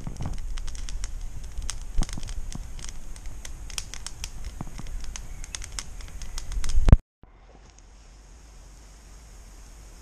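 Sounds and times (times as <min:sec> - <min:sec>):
campfire crackling and popping: 0:00.0 - 0:07.0.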